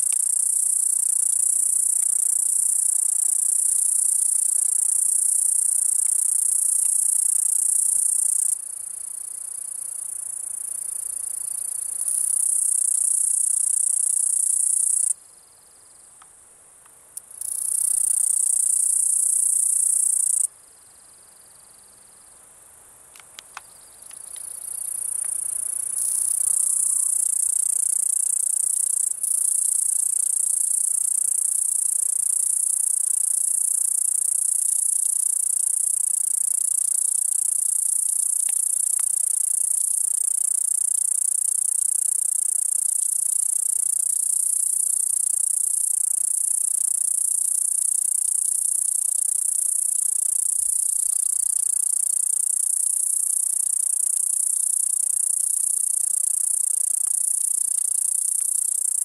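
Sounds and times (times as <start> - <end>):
cicada buzzing: 17.4 - 20.5, 24.2 - 59.0.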